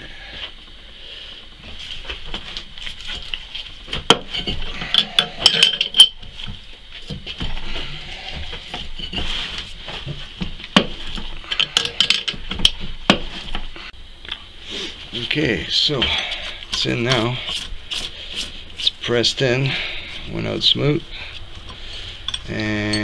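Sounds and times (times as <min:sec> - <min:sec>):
hand tools clicking on metal: 0:04.4 - 0:06.2.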